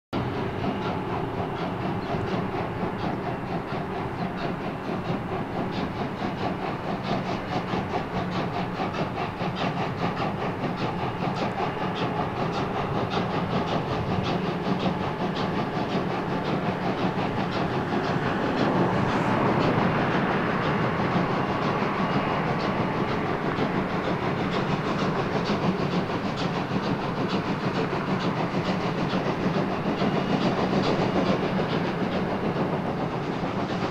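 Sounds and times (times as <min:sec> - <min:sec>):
steam locomotive exhaust beats: 0:00.2 - 0:33.9.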